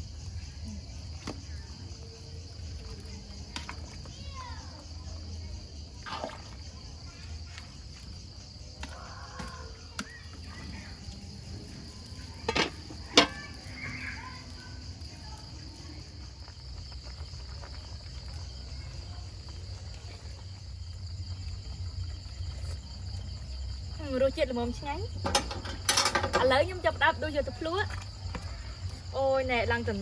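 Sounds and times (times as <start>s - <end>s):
crickets chirping: 0.0s - 30.0s
metal lid clanking on pot: 12.4s - 13.4s, 25.2s - 26.5s.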